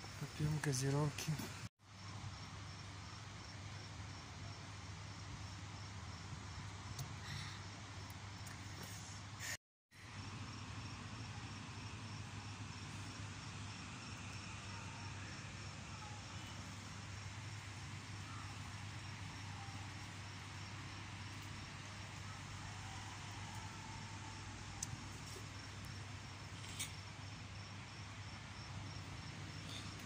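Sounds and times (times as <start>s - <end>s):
insects chirping: 0.0s - 8.6s, 10.1s - 30.0s
outdoor background noise: 0.0s - 30.0s.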